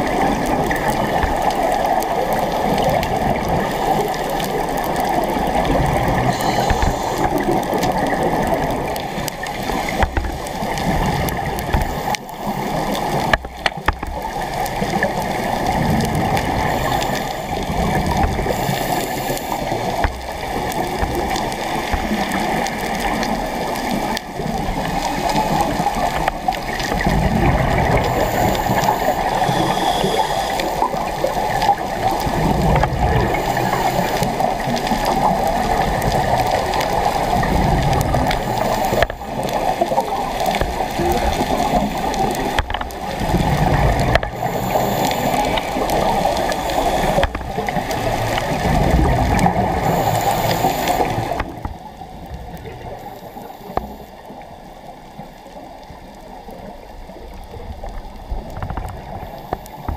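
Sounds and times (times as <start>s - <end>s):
muffled underwater water rush: 0.0s - 59.9s.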